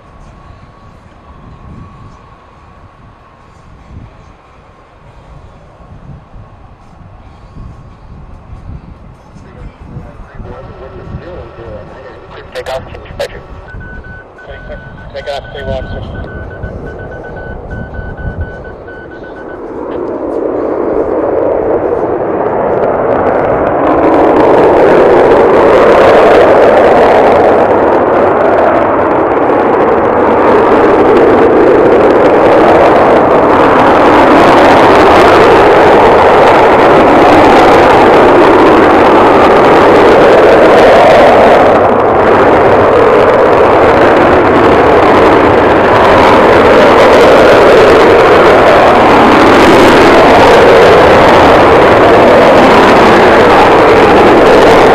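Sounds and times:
jet engines roaring: 0.0s - 54.9s.

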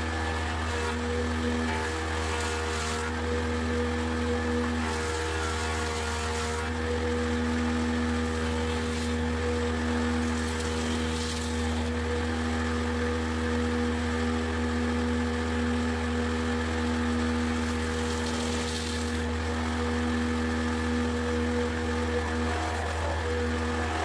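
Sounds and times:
cutter head rushing through board: 0.0s - 3.2s, 4.8s - 6.8s, 8.2s - 9.4s, 10.2s - 11.9s, 17.5s - 19.3s, 22.0s - 24.0s
jointer-planer motor humming: 0.0s - 24.0s.

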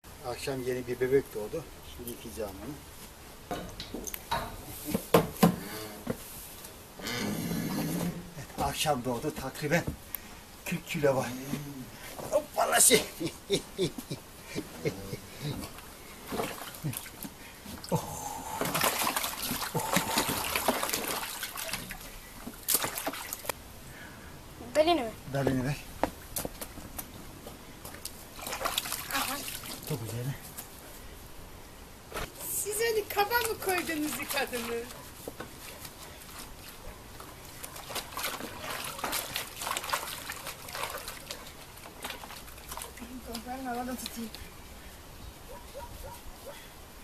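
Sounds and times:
water splashing in plastic tub: 15.3s - 23.5s, 28.0s - 30.0s, 32.2s - 44.4s.

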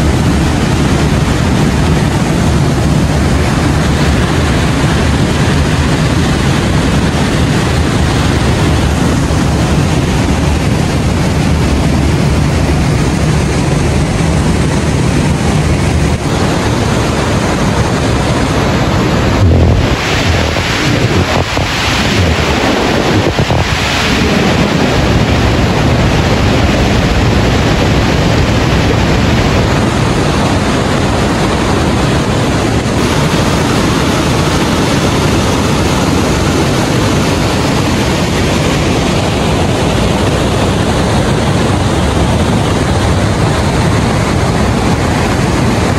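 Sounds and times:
water rushing over boulders: 0.0s - 45.9s.

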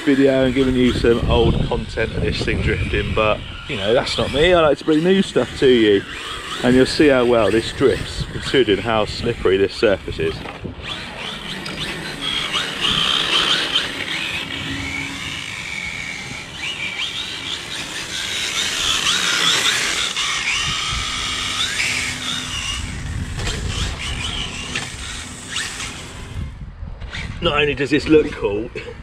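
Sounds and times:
electric motor whining: 0.0s - 28.5s.

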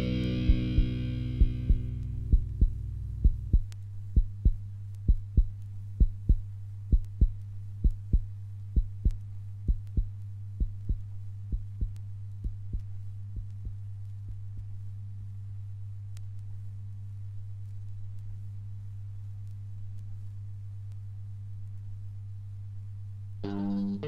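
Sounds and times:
electric guitar picked notes: 0.0s - 2.9s, 23.4s - 24.0s
low hum: 0.0s - 24.0s
heartbeat-like double thump: 0.5s - 14.4s.

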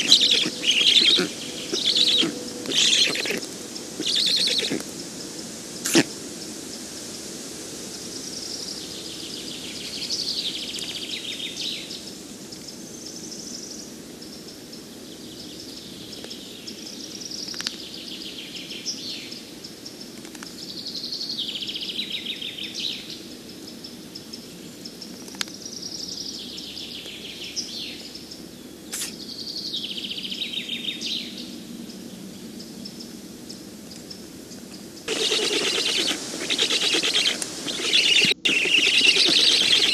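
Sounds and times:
stork nestlings chattering: 0.0s - 4.8s, 35.1s - 39.9s
low background noise: 0.0s - 39.9s
sharp clicks: 35.1s - 39.9s.

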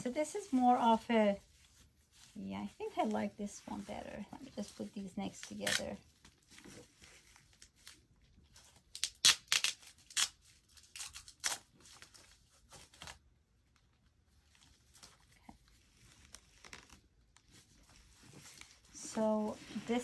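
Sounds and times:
packing wrap rustling: 14.4s - 20.0s.

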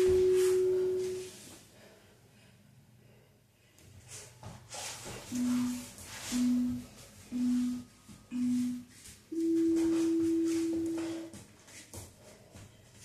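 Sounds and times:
long higher timer beep: 0.0s - 1.2s, 5.3s - 11.3s
short timer beeps: 6.3s - 11.0s.

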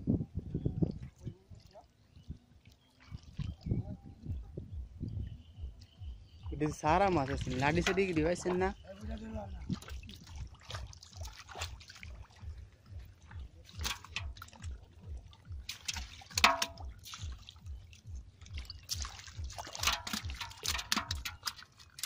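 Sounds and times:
shallow water splashing: 0.9s - 3.9s, 6.4s - 22.0s
low even throb: 3.7s - 19.6s
fish dropped into metal pot: 13.7s - 14.5s, 15.7s - 17.3s, 19.7s - 22.0s.

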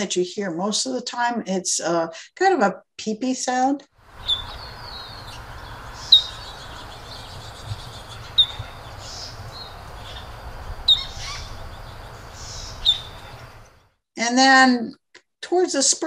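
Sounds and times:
background hiss: 4.0s - 13.8s
bird peep calls: 4.1s - 13.8s.

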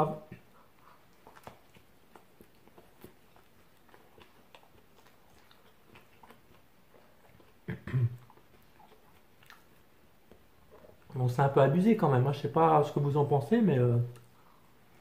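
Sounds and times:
man chewing: 0.2s - 11.2s
wet mouth clicks: 0.3s - 11.1s
throat sound: 7.6s - 8.4s.

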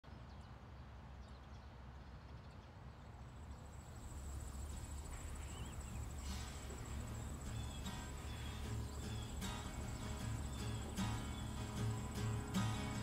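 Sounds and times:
pulsing insect trill: 3.6s - 13.0s
thin bird chirps: 3.6s - 13.0s
wavering bird call: 4.4s - 13.0s.

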